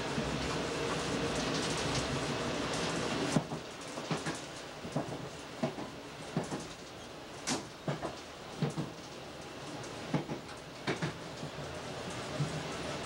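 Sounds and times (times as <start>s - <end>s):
train wheels knocking over rail joints: 7.5s - 9.0s, 10.1s - 11.2s.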